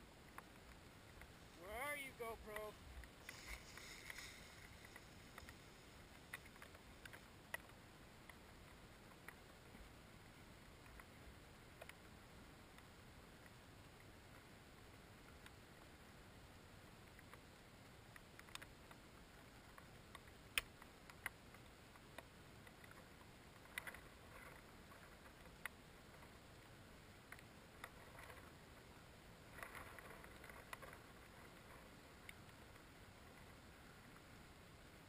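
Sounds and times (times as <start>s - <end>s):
crackling: 0.0s - 9.8s, 29.4s - 34.3s
faint clicks and ticks: 0.0s - 35.0s.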